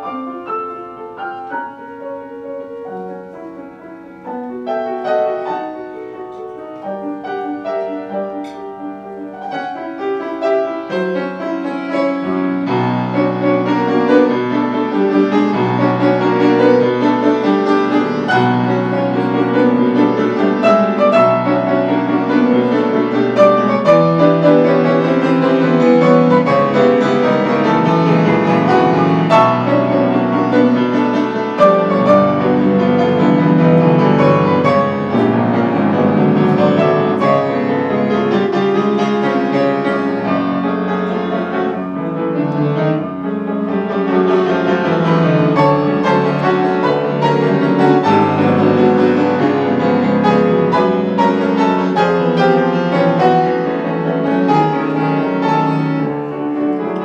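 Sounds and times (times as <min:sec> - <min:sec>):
solo piano piece: 0:00.0 - 0:57.0.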